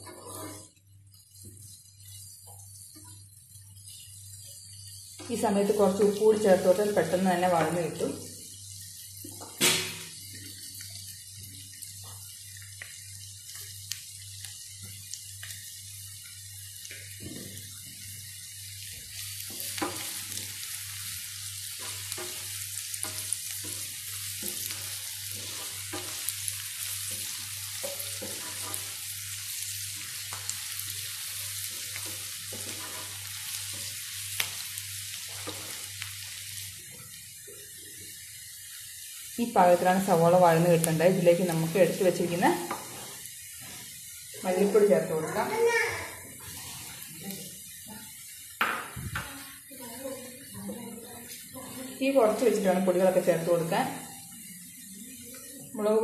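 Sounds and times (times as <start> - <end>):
spatula stirring and scraping pan: 0.0 - 10.7, 16.8 - 38.2, 39.8 - 47.1
vegetables sizzling in oil: 0.0 - 56.0.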